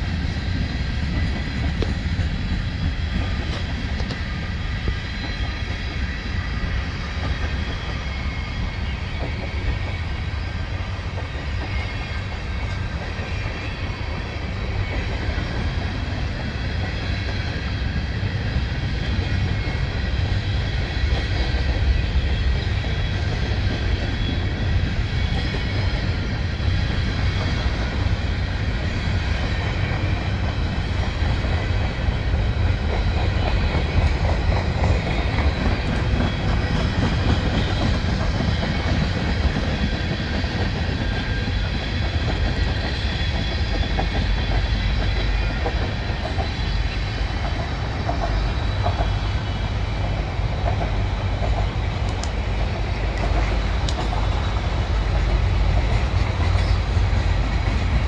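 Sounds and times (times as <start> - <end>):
train wheels rumbling on rails: 0.0 - 58.0.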